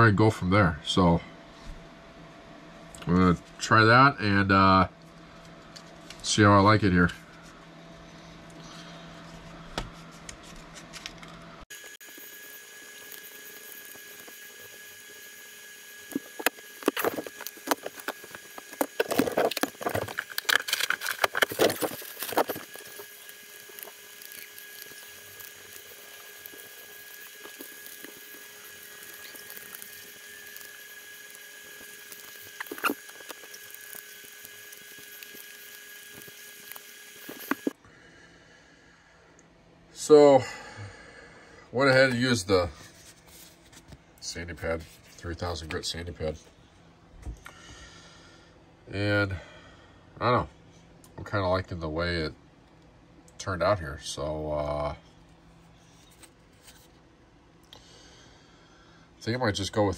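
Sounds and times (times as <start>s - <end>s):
steady hum: 0.0s - 59.9s
small items clicking and clattering: 16.2s - 37.7s
plastic bag rustling: 16.9s - 35.1s.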